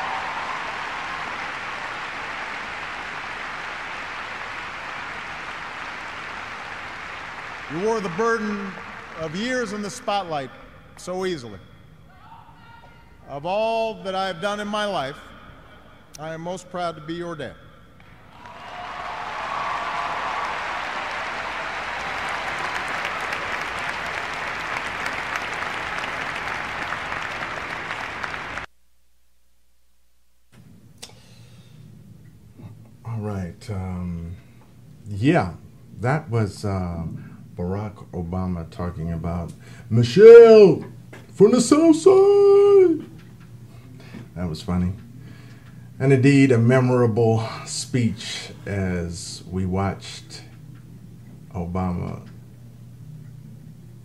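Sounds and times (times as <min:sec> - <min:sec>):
crowd applauding: 0:00.0 - 0:10.4, 0:18.1 - 0:28.7
faint hum: 0:00.0 - 0:54.0.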